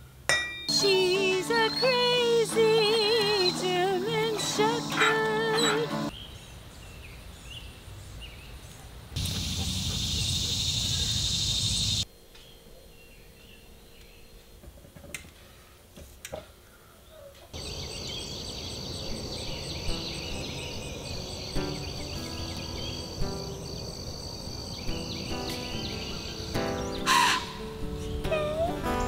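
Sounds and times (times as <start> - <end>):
soft music notes: 0.7 - 6.1, 19.0 - 29.0
insects buzzing: 0.7 - 6.2, 9.2 - 14.8, 17.6 - 29.0
crow cawing: 26.3 - 27.7.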